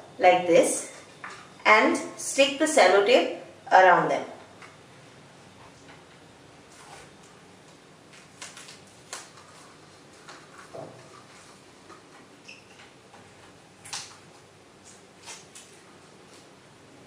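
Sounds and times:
paper crinkling: 0:06.7 - 0:12.3.

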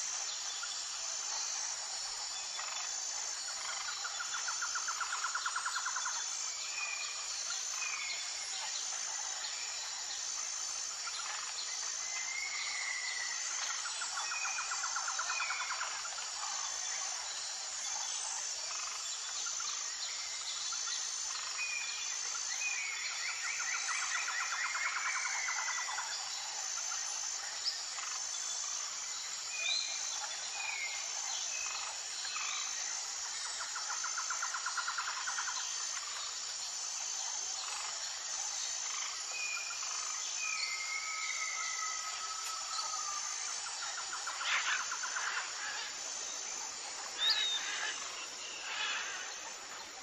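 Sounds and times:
high insect chorus: 0:00.0 - 0:50.0.

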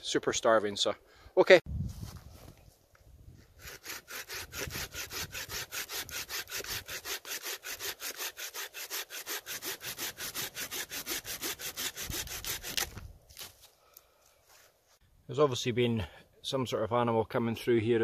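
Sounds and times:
saw cutting through branch: 0:03.4 - 0:13.6.

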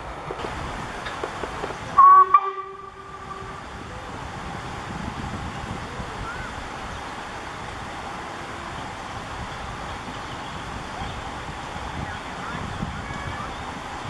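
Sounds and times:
wind rushing: 0:00.0 - 0:14.0
distant steam locomotive whistle: 0:02.0 - 0:03.9.

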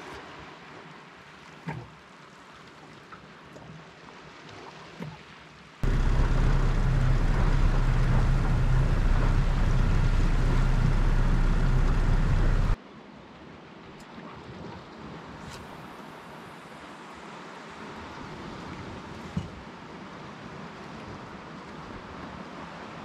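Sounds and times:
faint water lapping: 0:01.2 - 0:12.8
small knocks from boat: 0:01.6 - 0:01.9, 0:19.2 - 0:19.6
outboard motor running: 0:05.8 - 0:12.8.

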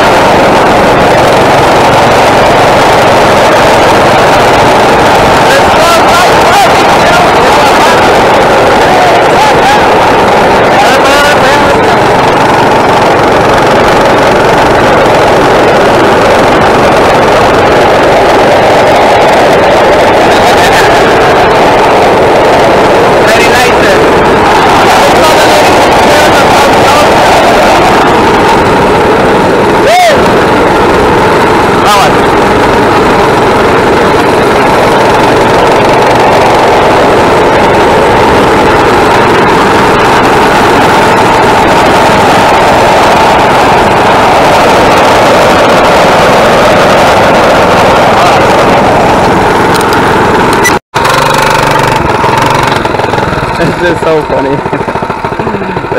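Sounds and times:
mini bike engine running: 0:00.0 - 0:55.9.

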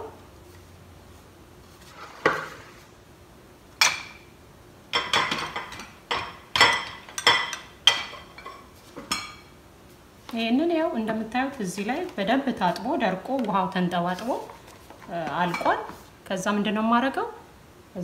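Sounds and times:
dishes and utensils clinking: 0:04.9 - 0:09.5.

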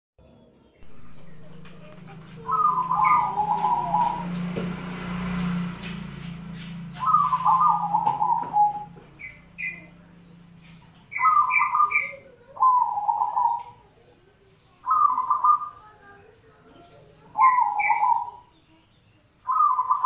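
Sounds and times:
dove cooing: 0:00.8 - 0:05.6, 0:06.8 - 0:14.2, 0:14.8 - 0:16.0, 0:16.6 - 0:18.5, 0:19.5 - 0:20.0.

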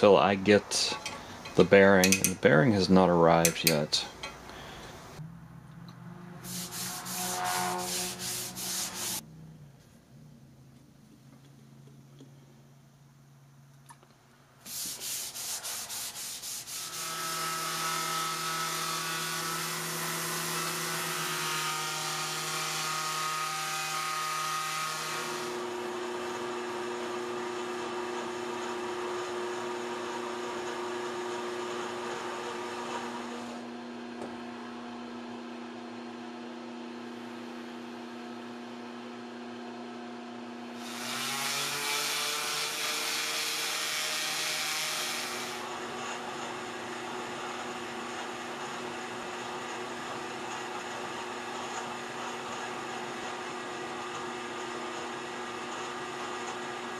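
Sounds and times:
power tool running: 0:04.6 - 0:09.2, 0:16.6 - 0:34.0, 0:40.7 - 0:56.9
sandpaper rubbing: 0:06.4 - 0:09.2, 0:14.6 - 0:17.2.

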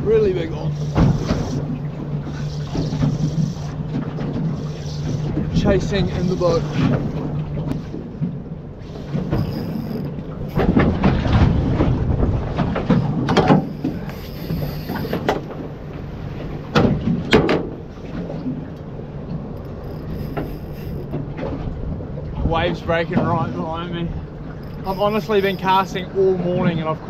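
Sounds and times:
outboard motor running: 0:00.0 - 0:27.0
waves breaking: 0:00.0 - 0:27.0
wind buffeting microphone: 0:09.2 - 0:15.9.

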